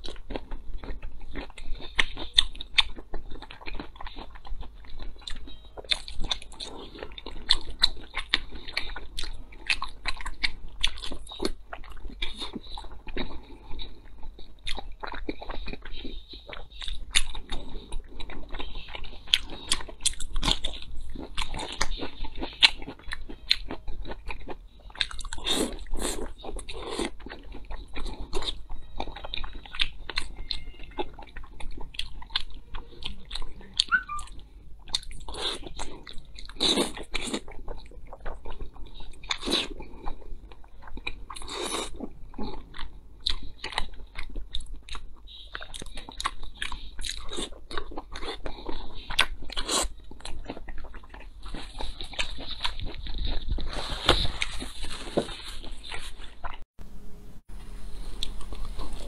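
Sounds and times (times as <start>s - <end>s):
person chewing food: 0.0s - 56.7s, 58.0s - 59.0s
mouth clicks: 33.0s - 34.4s.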